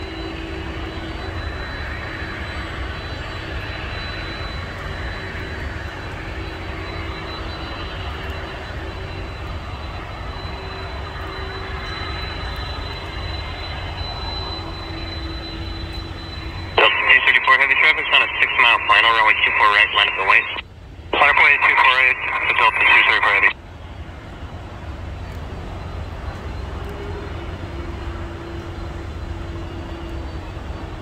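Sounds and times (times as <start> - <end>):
thin high whine: 0.0 - 23.6
distant jet engines rumbling: 0.6 - 31.0.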